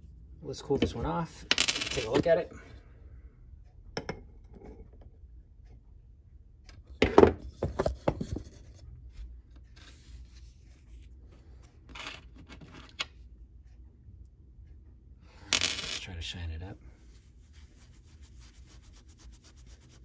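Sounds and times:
soft rubbing: 0:16.9 - 0:20.0.

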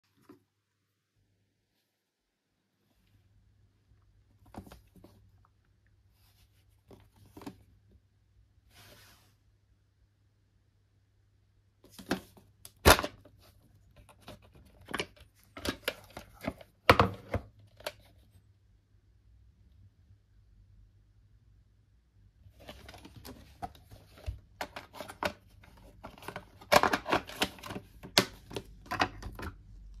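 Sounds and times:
plastic case clicks and rattles: 0:24.6 - 0:29.6.

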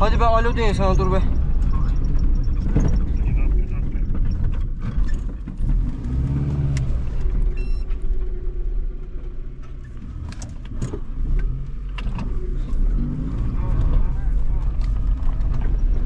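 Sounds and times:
knocks and rattles from bumps: 0:00.0 - 0:08.6
engine low rumble: 0:00.0 - 0:16.0.

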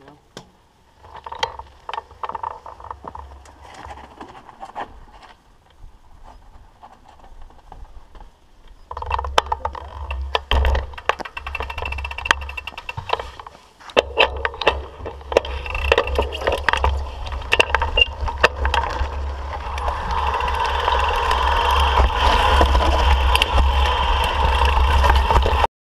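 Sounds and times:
bike rattling over rocks: 0:00.9 - 0:05.6, 0:06.2 - 0:25.7
rushing noise: 0:10.1 - 0:25.7
wind rumble on microphone: 0:14.2 - 0:25.7.

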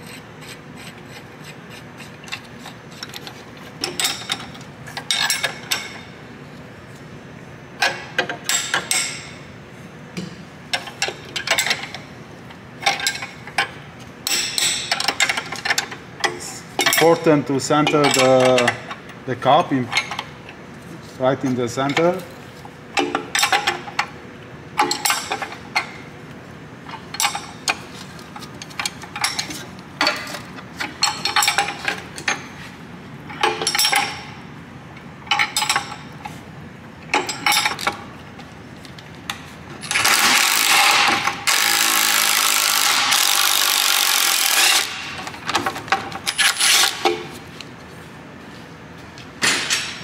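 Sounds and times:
impact wrench hammering: 0:39.9 - 0:45.2.

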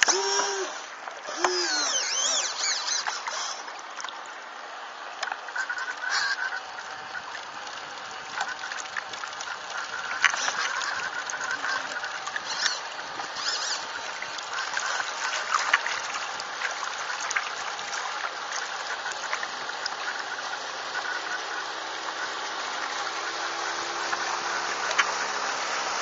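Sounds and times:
high chirping glides: 0:00.0 - 0:03.6
short whining tone: 0:00.0 - 0:03.6
water rushing and splashing: 0:00.0 - 0:26.0.

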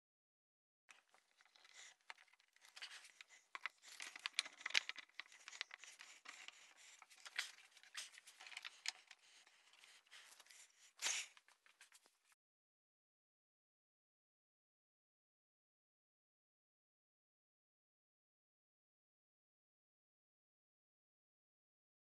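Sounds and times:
clamps clicking and scraping: 0:00.9 - 0:10.5.

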